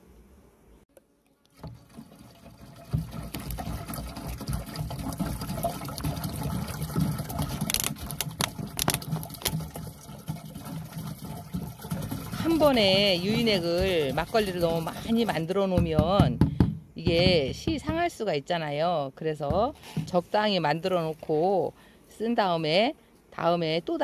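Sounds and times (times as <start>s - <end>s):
liquid pouring into liquid: 1.4s - 15.2s.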